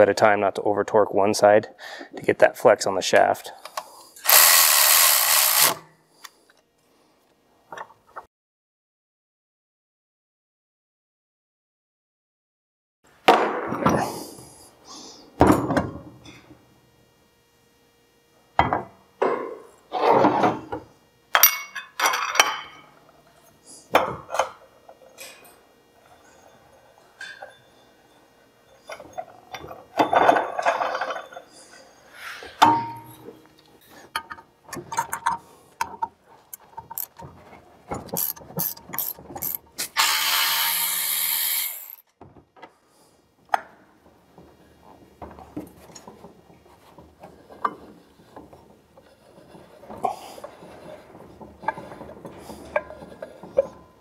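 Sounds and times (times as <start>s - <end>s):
cordless ratchet running: 4.2s - 5.8s, 38.1s - 42.0s.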